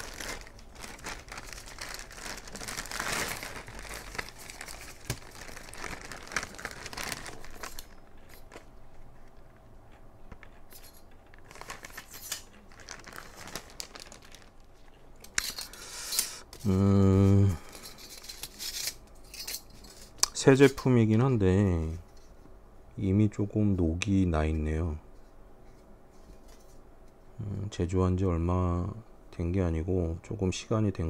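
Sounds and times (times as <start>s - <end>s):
plastic bag crinkling: 0.0s - 8.8s, 10.4s - 16.8s.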